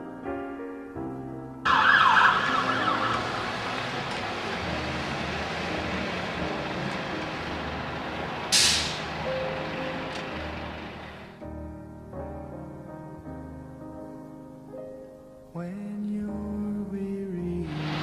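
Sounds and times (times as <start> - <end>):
emergency vehicle siren wailing: 1.7 - 11.3
short hiss: 8.5 - 9.1.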